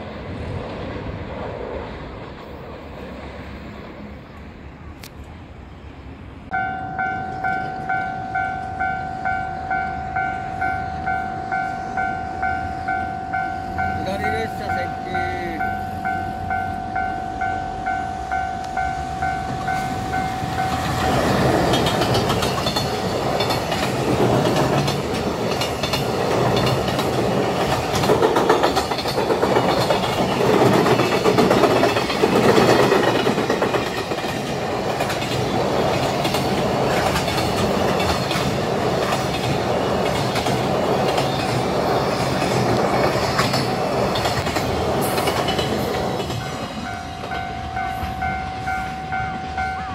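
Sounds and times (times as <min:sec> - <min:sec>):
train wheels clacking over rail joints: 0:19.5 - 0:48.3.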